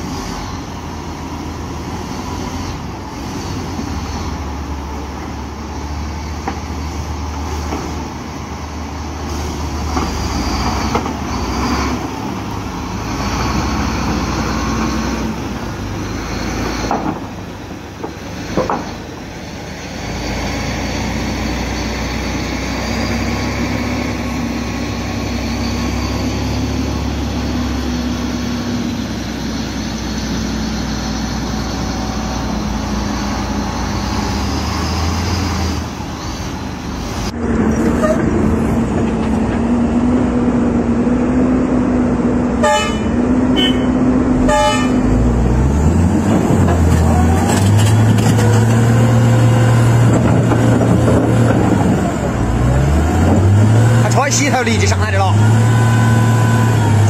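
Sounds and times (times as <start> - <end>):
truck diesel engine running: 0.0 - 57.0
truck horn toots: 38.0 - 38.3, 42.6 - 45.3.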